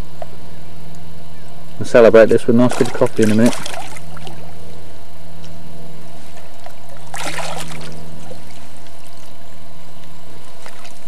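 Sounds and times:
steady low hum: 0:00.0 - 0:11.0
water splashing: 0:02.6 - 0:04.8, 0:06.3 - 0:09.3, 0:10.4 - 0:11.0.

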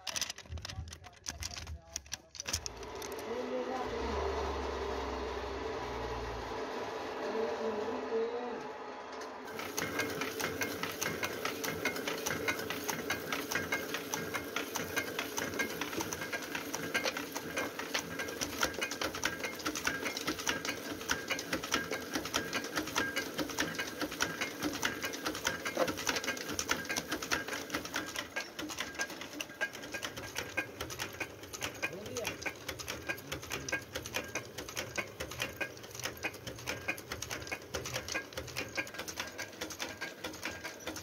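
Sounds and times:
small machine clattering: 0:00.0 - 0:03.8, 0:09.2 - 0:41.0.

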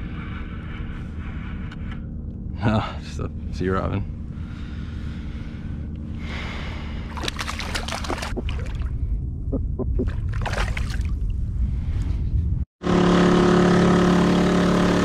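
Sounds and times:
low wind rumble: 0:00.0 - 0:12.7
water lapping at a hull: 0:06.8 - 0:09.1, 0:09.9 - 0:11.4
short clicks and splashes: 0:07.1 - 0:08.9.

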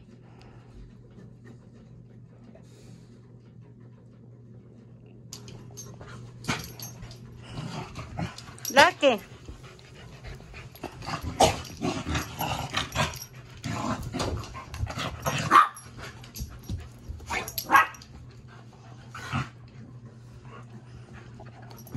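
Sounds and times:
dogs barking and growling: 0:05.4 - 0:18.2, 0:18.9 - 0:19.8.

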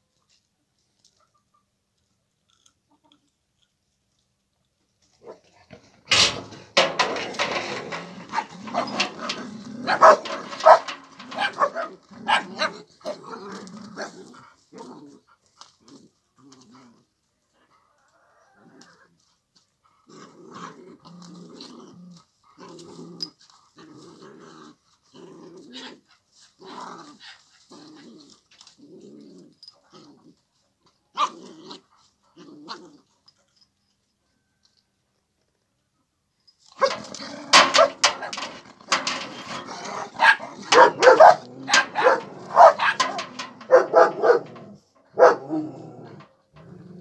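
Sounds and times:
dogs growling: 0:05.7 - 0:15.2, 0:36.8 - 0:47.0.

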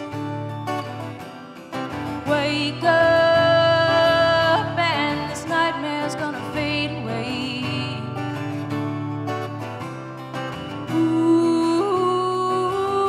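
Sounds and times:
acoustic guitar: 0:00.0 - 0:13.0
woman singing: 0:02.2 - 0:08.5, 0:10.7 - 0:13.0.

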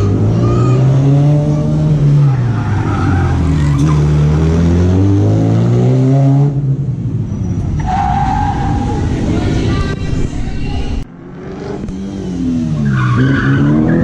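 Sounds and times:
car engine revving: 0:00.0 - 0:06.9, 0:11.0 - 0:14.0.

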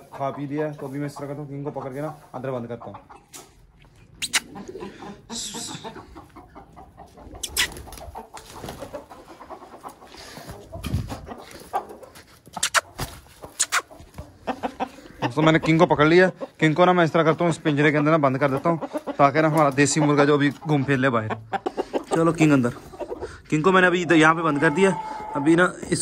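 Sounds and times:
rooster clucking: 0:00.0 - 0:26.0.

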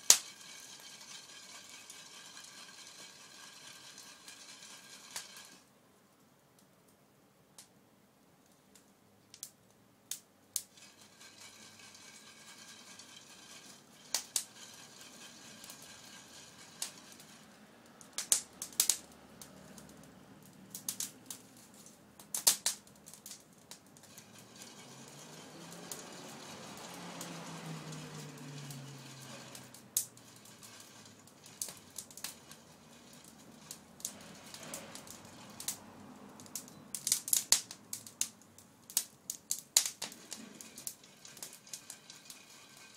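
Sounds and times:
faint steady hiss: 0:00.0 - 0:42.9
wood fire crackling: 0:00.0 - 0:42.9.

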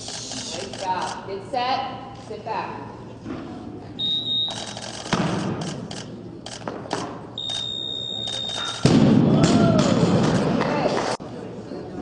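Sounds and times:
high electronic beep: 0:07.4 - 0:08.9.

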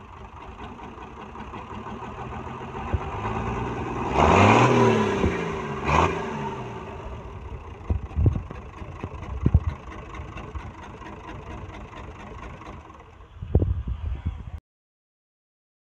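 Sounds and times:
engine knocks: 0:00.0 - 0:04.0, 0:07.1 - 0:13.2
diesel engine revving and running: 0:00.0 - 0:13.2.

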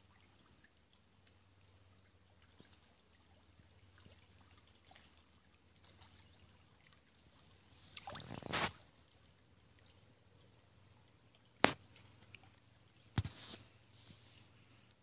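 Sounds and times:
small clicks in shallow water: 0:00.0 - 0:15.0
splash in water: 0:07.8 - 0:08.9.

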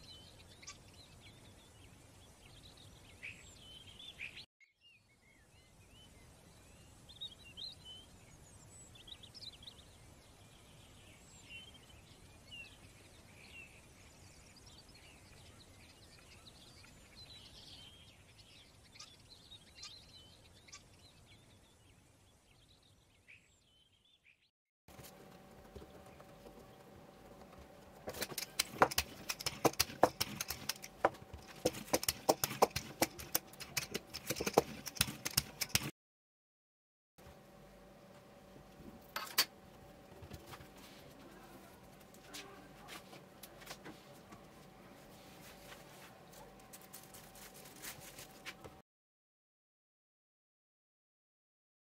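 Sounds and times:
low steady hum: 0:24.9 - 0:35.9, 0:37.2 - 0:48.8
wooden rolling pin clattering: 0:28.0 - 0:35.9.

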